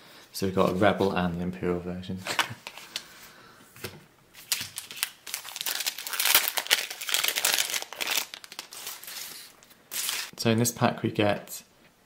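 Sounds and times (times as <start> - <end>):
foil wrapper crinkling: 4.4 - 10.3.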